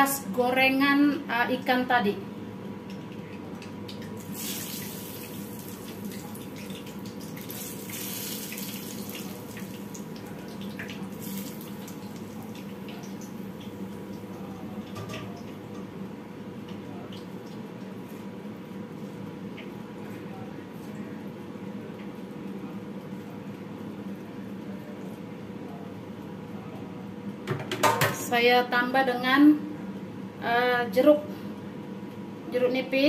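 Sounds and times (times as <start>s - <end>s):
steady background hum: 0.0s - 33.0s
hot oil hissing on chillies: 4.2s - 6.1s, 7.4s - 10.2s.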